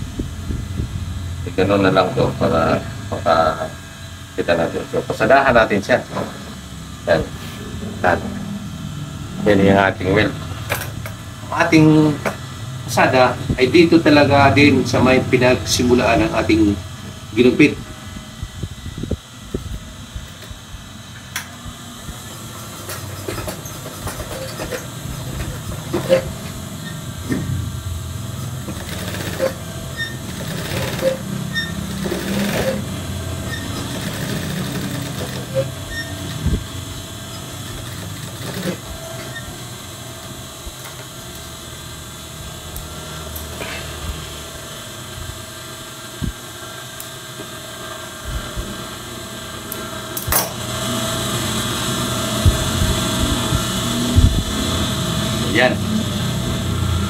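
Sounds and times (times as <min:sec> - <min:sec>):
sewing machine motor hum: 0:19.4 - 0:57.0.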